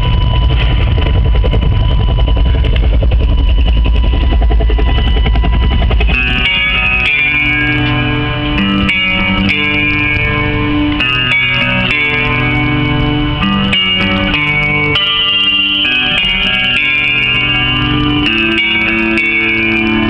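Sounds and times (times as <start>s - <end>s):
rock music through car stereo: 0.0s - 20.0s.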